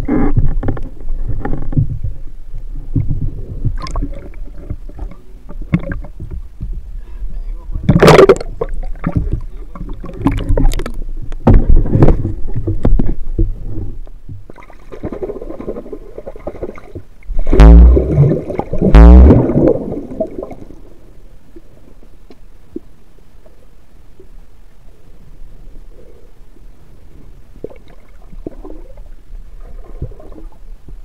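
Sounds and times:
muffled underwater sound: 0.0 - 14.5
low hiss: 0.0 - 31.0
water splashing and sloshing: 2.8 - 6.9, 7.8 - 23.6, 27.1 - 31.0.

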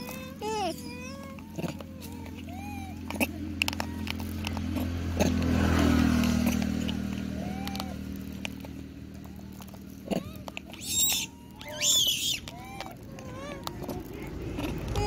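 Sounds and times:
motor engine humming: 0.0 - 15.0
chirpy calls: 10.6 - 13.8.

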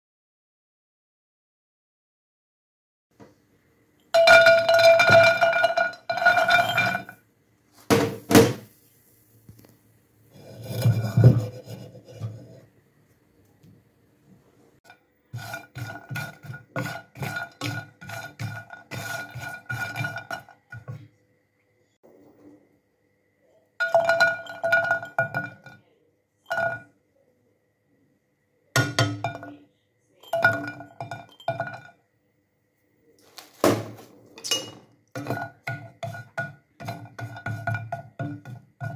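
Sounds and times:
nuts rattling in metal pan: 4.4 - 7.2.

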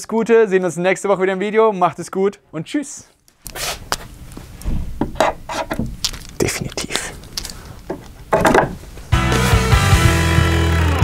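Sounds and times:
handling and scraping noises: 3.4 - 9.2.

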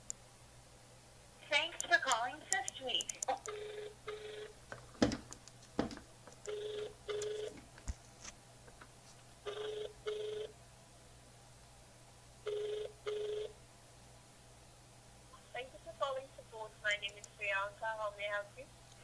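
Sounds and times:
sharp clicks: 1.8 - 3.6
telephone ringback tone: 3.5 - 4.6, 6.5 - 7.5, 9.5 - 10.5, 12.4 - 13.6.

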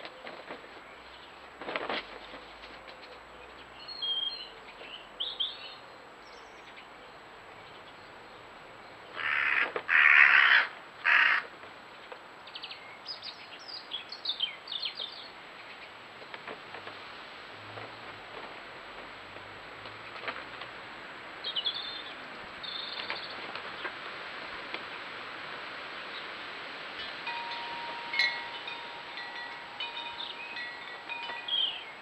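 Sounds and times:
small birds chirping: 3.0 - 9.6, 11.9 - 16.0, 21.4 - 24.0, 27.0 - 32.0
crow cawing: 9.2 - 11.5.

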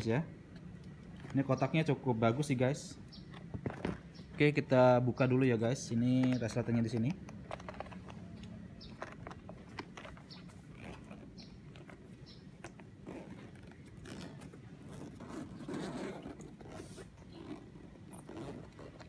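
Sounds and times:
case clicks and knocks: 3.3 - 4.3
zipper being pulled open: 8.8 - 19.0.

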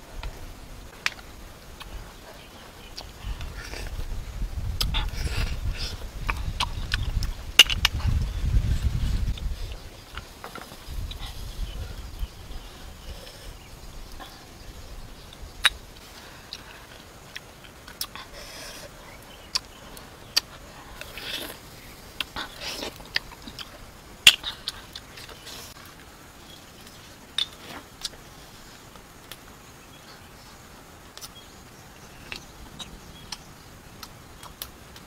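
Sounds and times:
slurping and chewing: 15.6 - 29.4.

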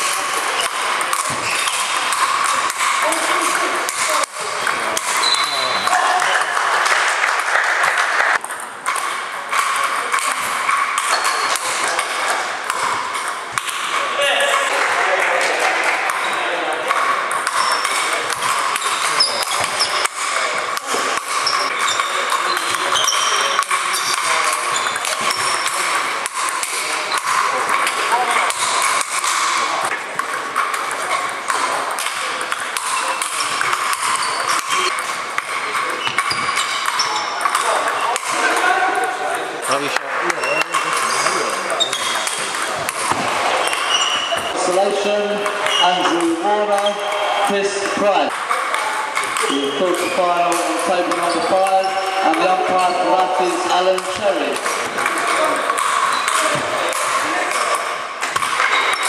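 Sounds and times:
ping-pong ball clicking: 0.0 - 5.6, 8.4 - 13.9, 16.0 - 38.6, 39.9 - 44.5, 54.0 - 59.0
distant ping-pong ball clicks: 0.0 - 44.6, 48.2 - 59.0
murmur of hall: 0.0 - 59.0.

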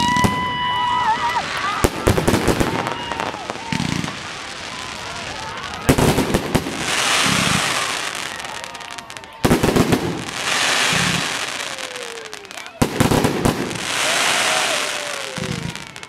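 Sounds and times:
fireworks shells bursting: 5.8 - 16.0.

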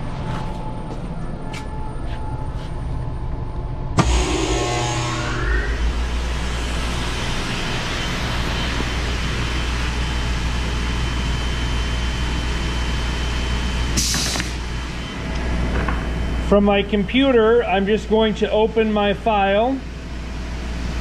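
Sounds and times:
vacuum pump low hum: 0.0 - 21.0
brief air hiss: 14.0 - 14.6.

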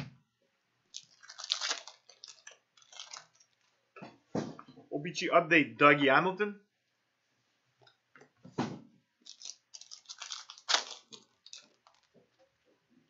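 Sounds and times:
cards rustling and clicking: 1.0 - 3.7, 9.3 - 12.2.

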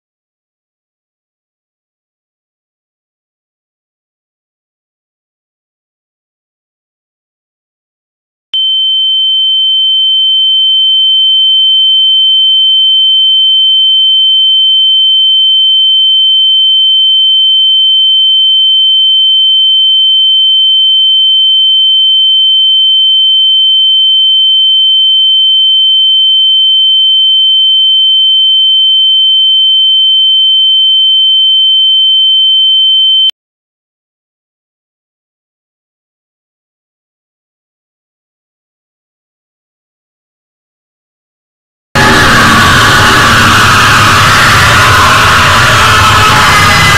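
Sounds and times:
high-pitched electronic tone: 42.0 - 46.9.

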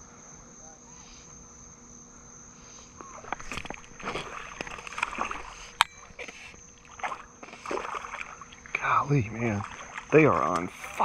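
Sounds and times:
high-pitched insect drone: 0.0 - 11.0
fish splashing at water surface: 3.1 - 11.0.

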